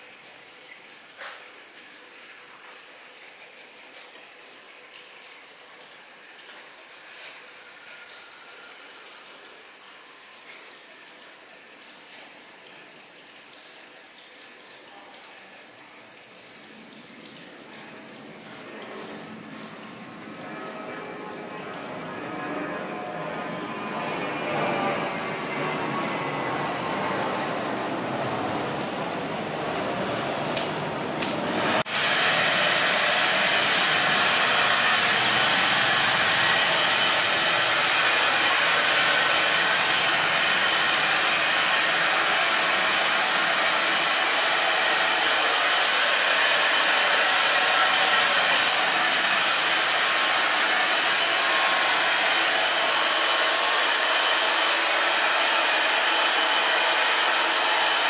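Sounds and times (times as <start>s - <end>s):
hair dryer blowing: 30.5s - 58.0s.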